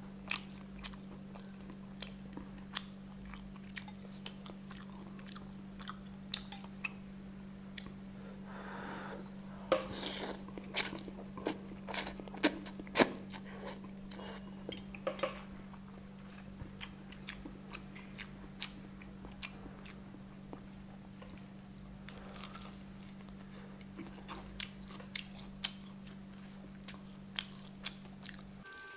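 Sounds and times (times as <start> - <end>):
steady low hum: 0.0 - 28.9
wet chewing and mouth clicks: 16.3 - 28.5.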